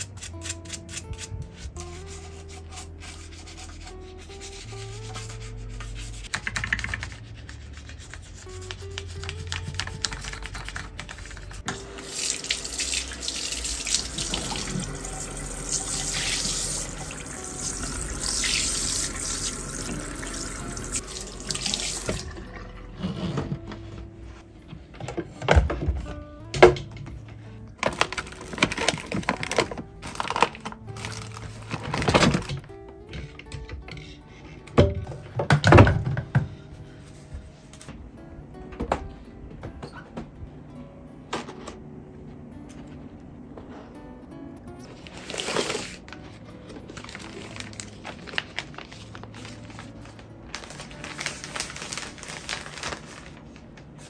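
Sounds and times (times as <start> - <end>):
background music: 0.0 - 54.0
tap water running into basin: 11.7 - 22.8.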